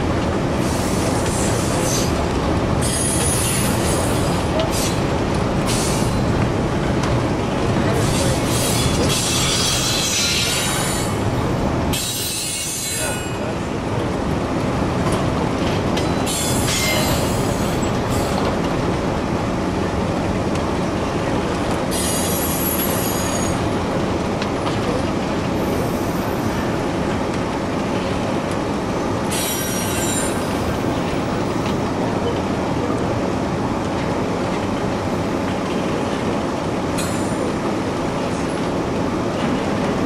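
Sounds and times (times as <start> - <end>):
freight train rumble and clatter: 0.0 - 40.0
train wheel squeal: 0.6 - 2.2, 2.8 - 5.0, 5.7 - 6.2, 8.0 - 11.2, 11.9 - 13.5, 16.0 - 18.4, 21.9 - 23.7, 25.6 - 26.7, 29.3 - 31.7, 37.0 - 37.4.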